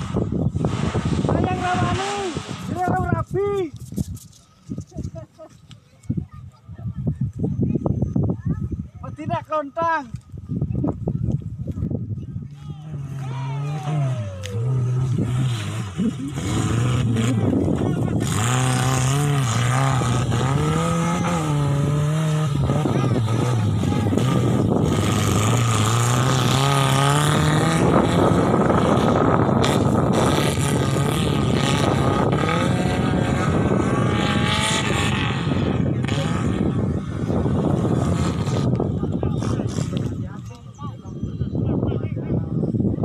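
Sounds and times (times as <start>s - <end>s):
off-road vehicle engine revving: 0.0s - 3.3s, 12.5s - 40.9s.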